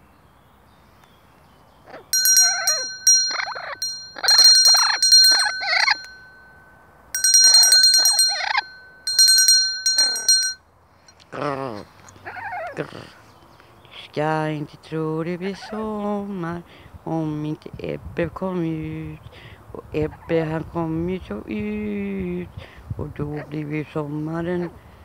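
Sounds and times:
parrot squawking: 0:01.9 - 0:06.0
hand bell ringing: 0:02.2 - 0:10.6.

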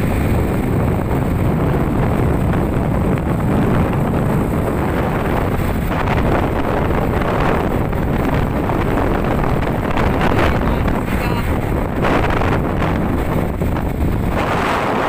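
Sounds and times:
truck engine rumble: 0:00.0 - 0:15.0
wind buffeting microphone: 0:00.0 - 0:15.0.

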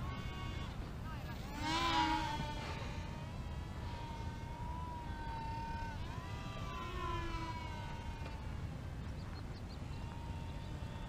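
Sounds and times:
model plane electric motors whining: 0:00.0 - 0:11.0
wind rumbling on microphone: 0:00.0 - 0:11.0.

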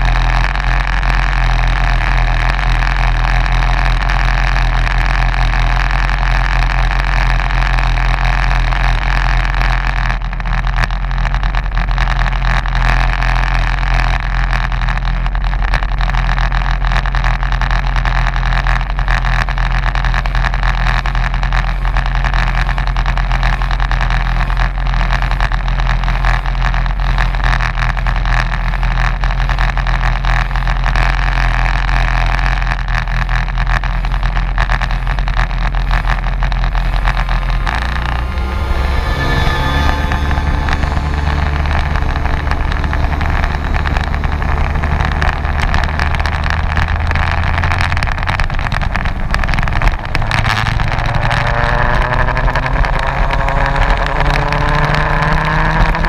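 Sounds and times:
kart engine idling: 0:00.0 - 0:56.0.

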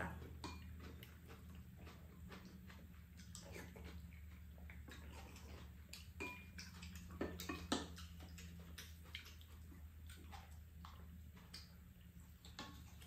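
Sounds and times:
faint low hum: 0:00.0 - 0:13.0
chewing clicks and smacks: 0:00.1 - 0:13.0
utensils tapping bowls: 0:06.2 - 0:06.6.

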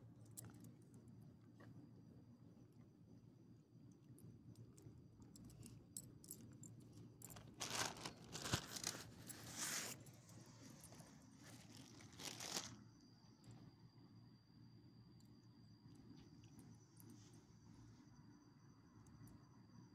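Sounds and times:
close crinkling and rustling: 0:07.2 - 0:12.8.

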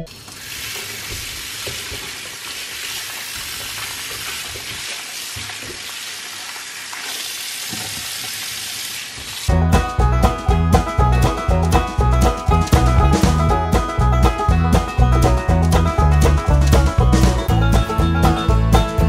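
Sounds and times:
tap water running onto fruit: 0:00.0 - 0:09.6
music: 0:09.5 - 0:19.0.

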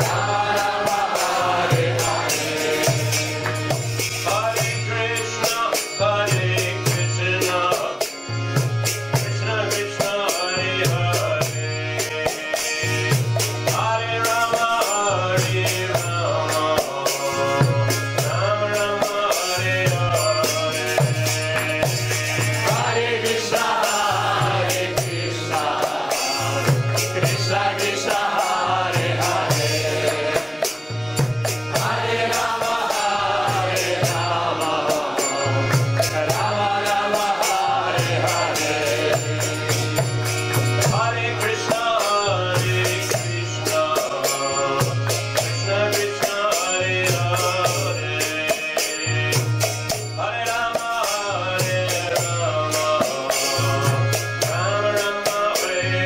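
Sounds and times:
drum beat: 0:00.0 - 0:04.4
voices singing a mantra: 0:00.0 - 0:08.0, 0:09.4 - 0:31.0, 0:31.7 - 0:40.1, 0:40.8 - 0:49.5, 0:50.5 - 0:56.0
hand cymbals: 0:00.0 - 0:56.0.

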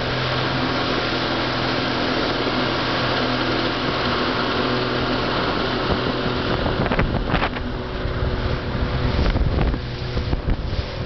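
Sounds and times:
boat engine running: 0:00.0 - 0:11.0
water rushing past hull: 0:00.0 - 0:11.0
wind buffeting microphone: 0:03.8 - 0:11.0.

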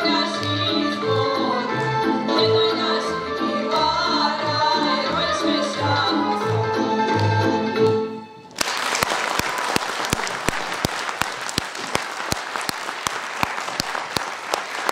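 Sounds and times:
women's vocal group singing: 0:00.0 - 0:06.6
audience applause: 0:08.5 - 0:14.9.

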